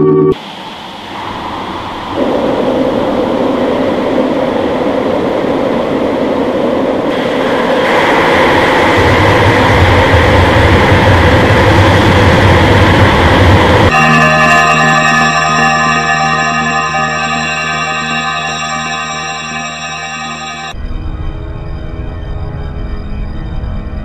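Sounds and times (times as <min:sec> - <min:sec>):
harsh distorted noise: 0:13.9 - 0:20.7.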